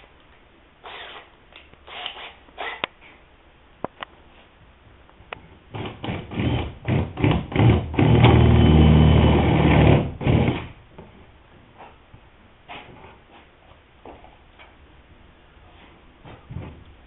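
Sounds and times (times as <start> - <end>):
cordless drill boring into wood: 1.9 - 2.8, 5.8 - 10.7.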